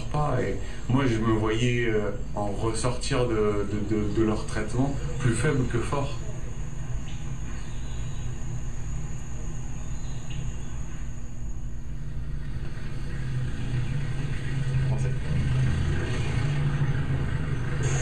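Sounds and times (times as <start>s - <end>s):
car engine and road noise: 12.2s - 18.0s.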